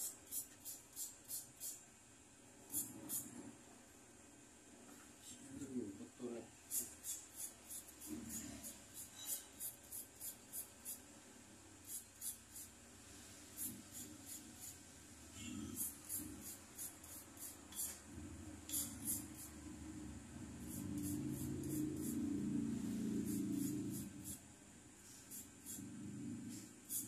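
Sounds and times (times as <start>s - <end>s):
file rasping on metal: 15.7s - 18.0s.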